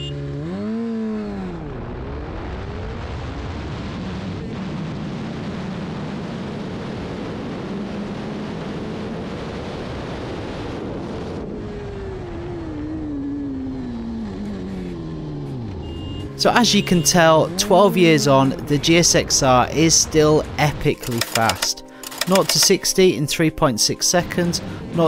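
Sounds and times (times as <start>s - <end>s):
motorcycle engine revving: 0.0s - 3.3s, 10.8s - 19.4s.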